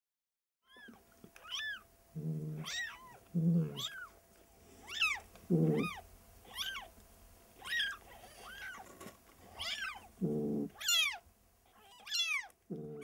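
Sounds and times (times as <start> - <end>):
cat mewing: 0.7 - 4.1, 4.8 - 6.9, 7.6 - 8.8, 9.5 - 13.0.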